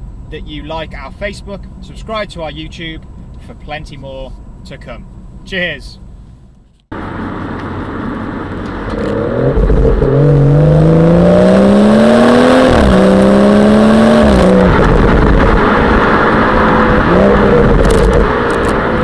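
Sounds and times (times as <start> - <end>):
car exhaust accelerating: 4.3 - 19.0.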